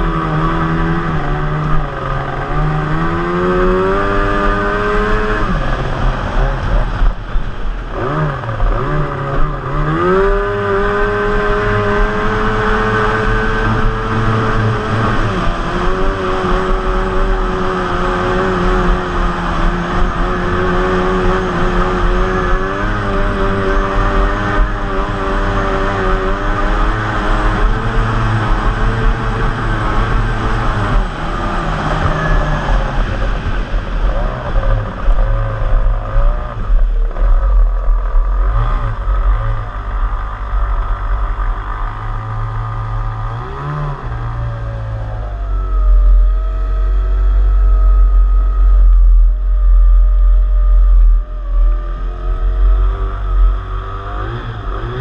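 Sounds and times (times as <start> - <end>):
water and wind rushing: 0.0 - 40.6
racing outboard motor: 0.0 - 55.0.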